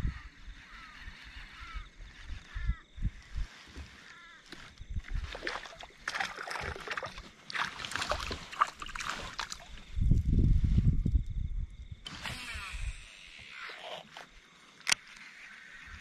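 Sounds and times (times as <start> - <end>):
fish splashing at water surface: 5.2 - 9.8.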